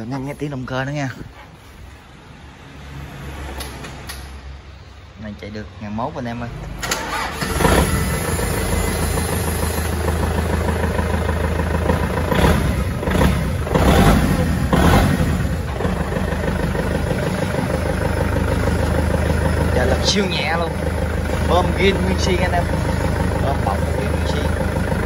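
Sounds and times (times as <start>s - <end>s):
tractor diesel engine idling: 6.6s - 25.0s.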